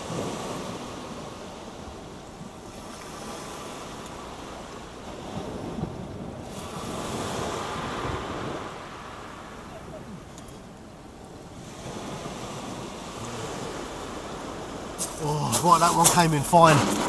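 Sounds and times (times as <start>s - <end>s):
wind buffeting microphone: 0.0s - 17.0s
waves breaking on shingle: 11.6s - 17.0s.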